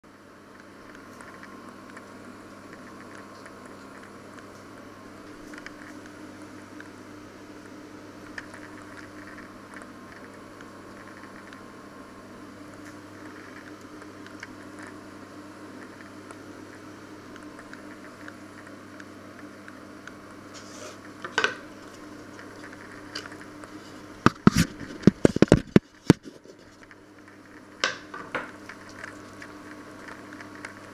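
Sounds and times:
sharp clicks and knocks: 0:24.2 - 0:26.3.

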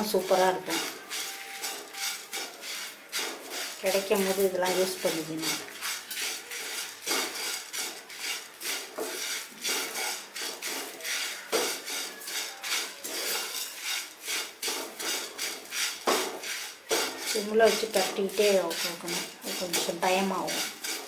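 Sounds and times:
leaves rustling in a pan: 0:00.0 - 0:21.0
spatula scraping a pan: 0:00.0 - 0:21.0.

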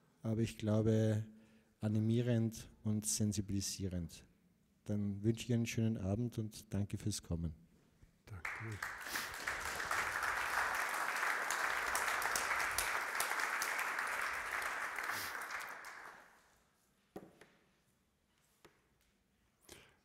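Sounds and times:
audience applauding: 0:08.4 - 0:16.4.

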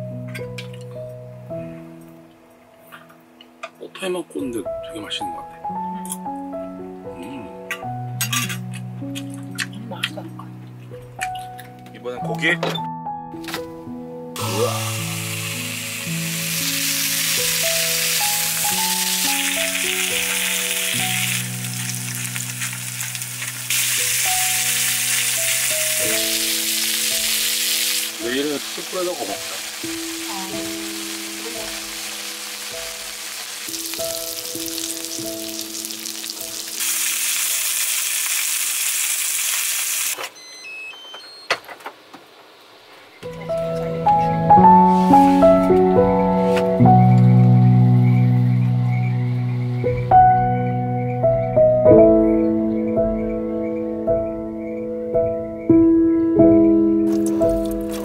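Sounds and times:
slow piano music: 0:00.0 - 0:38.0, 0:43.2 - 0:58.0
meat sizzling in a frying pan: 0:14.4 - 0:40.2.

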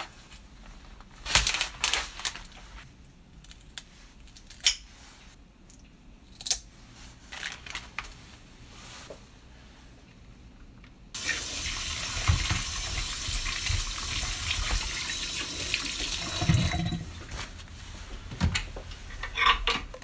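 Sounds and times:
plastic film crinkling: 0:00.8 - 0:02.8.

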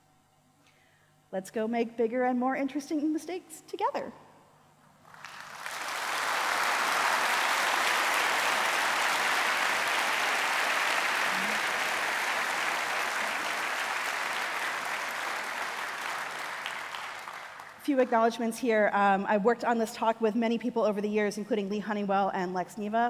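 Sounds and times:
audience applauding: 0:05.0 - 0:17.8.

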